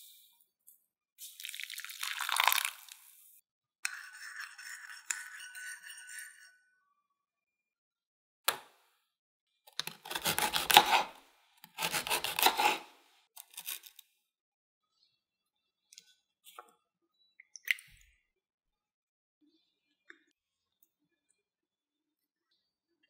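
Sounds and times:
dry cookie crunching: 0:13.4 - 0:14.0.

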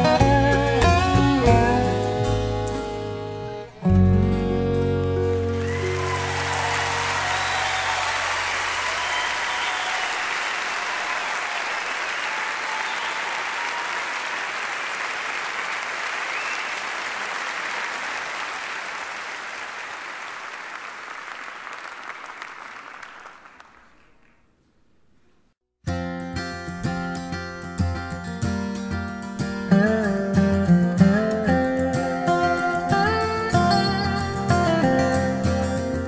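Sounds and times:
audience applause: 0:05.4 - 0:24.4.

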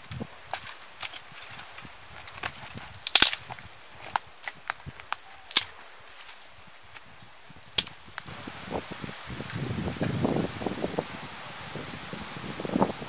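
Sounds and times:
dry branches snapping: 0:00.0 - 0:06.4, 0:07.0 - 0:08.3.

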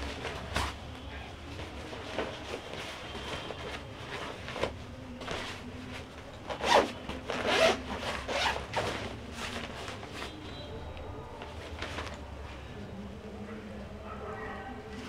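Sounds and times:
backpack fabric and zipper swishes: 0:06.5 - 0:10.2.

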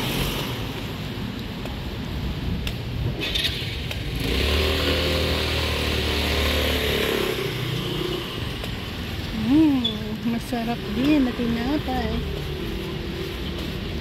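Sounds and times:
motor scooter passing: 0:03.2 - 0:09.0.

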